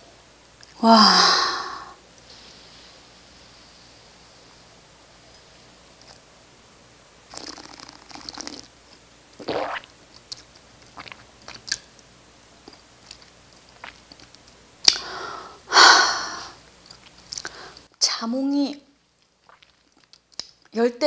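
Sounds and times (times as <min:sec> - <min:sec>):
loud breath: 0:00.8 - 0:02.0, 0:15.0 - 0:16.6, 0:17.4 - 0:17.9.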